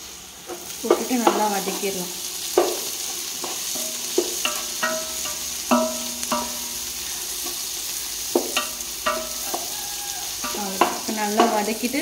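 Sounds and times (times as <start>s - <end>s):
onions sizzling in a pot: 0.0s - 12.0s
utensil knocking on a ringing pot: 3.7s - 6.9s, 8.4s - 9.8s, 10.4s - 11.7s.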